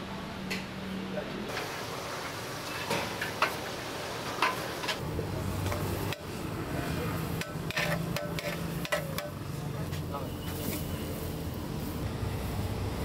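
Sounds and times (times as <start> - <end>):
steady background noise: 0.0 - 13.0
metal utensils clinking on dishes: 7.3 - 9.4.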